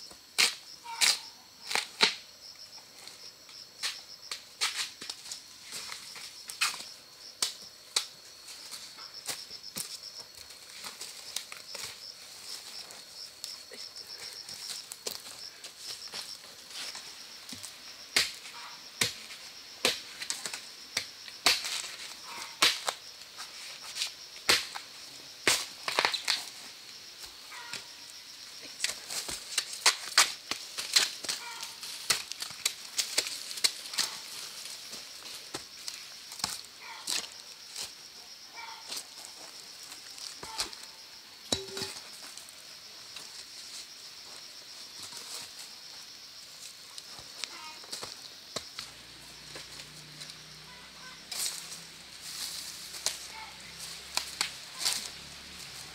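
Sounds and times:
high insect drone: 0.0s - 55.9s
sharp cracks and snaps: 25.5s - 26.5s.

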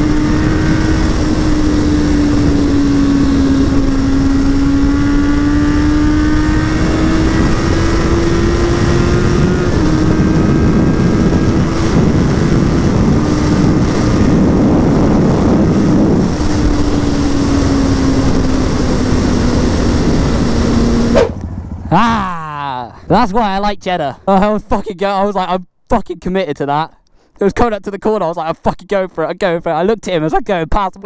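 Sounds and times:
wind rush on microphone: 0.0s - 21.4s
motorcycle engine at high revs: 0.0s - 22.3s.

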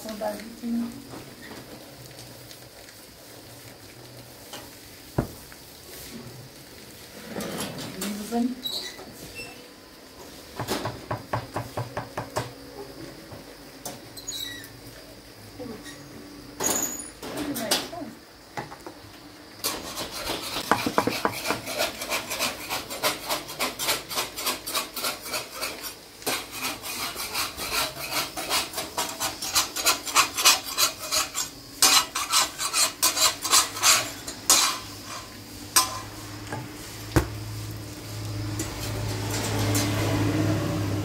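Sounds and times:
rapid scraping strokes: 19.6s - 36.3s
knocks: 20.6s - 21.6s.

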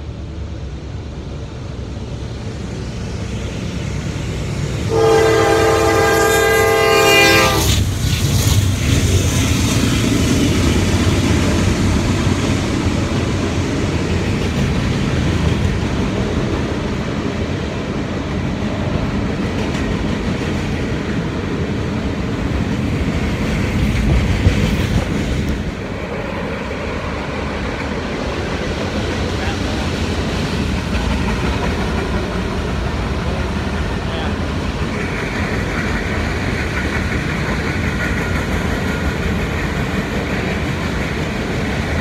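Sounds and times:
diesel locomotive engine running: 0.0s - 42.0s
train horn: 4.9s - 7.8s.

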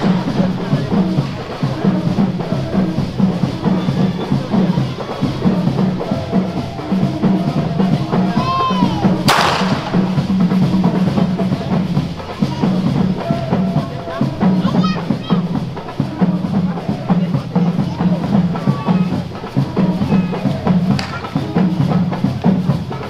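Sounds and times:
skin drums beating: 0.0s - 23.0s
sharp crack: 9.2s - 10.3s, 21.0s - 21.2s.

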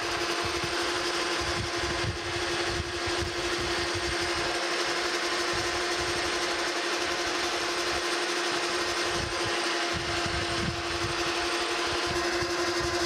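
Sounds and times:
metal lathe humming: 0.0s - 13.0s.

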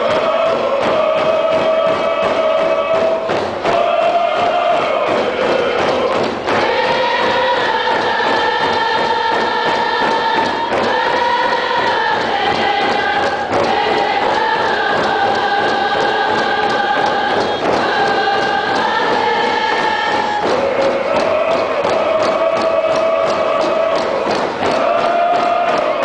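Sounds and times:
group singing in unison: 0.0s - 26.0s
hand drums beating: 0.0s - 26.0s.

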